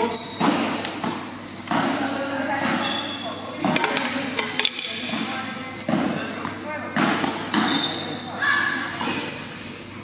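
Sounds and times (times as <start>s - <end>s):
tennis balls bouncing on hard court: 0.0s - 3.0s, 3.6s - 8.0s
tennis balls struck by rackets: 0.2s - 2.0s, 3.6s - 7.9s.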